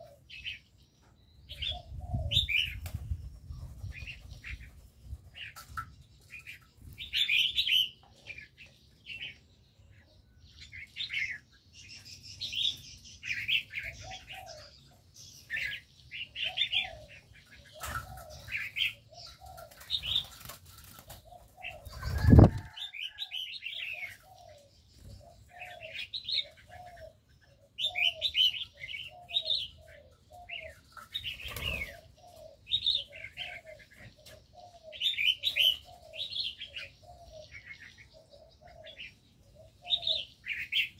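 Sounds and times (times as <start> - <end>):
dove cooing: 0.0 - 0.6, 1.5 - 2.8, 13.2 - 40.9
birds chirping: 0.0 - 40.9.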